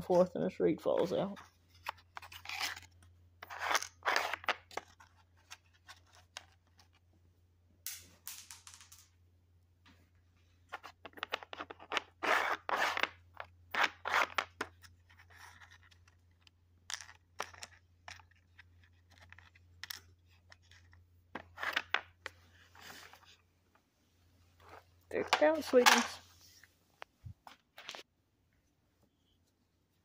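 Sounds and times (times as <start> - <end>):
plastic pieces sliding and rattling: 1.8 - 7.0, 10.7 - 23.4.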